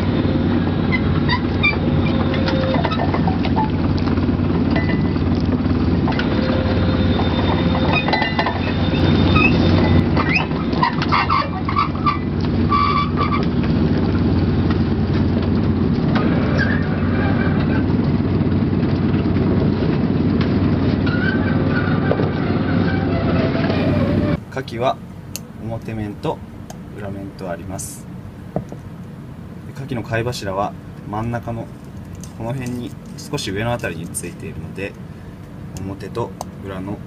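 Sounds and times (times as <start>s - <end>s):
boat machinery droning: 0.0s - 37.0s
short squeaks: 0.8s - 3.8s, 6.1s - 13.6s, 16.2s - 17.9s, 21.0s - 24.4s
clanks: 7.2s - 13.8s.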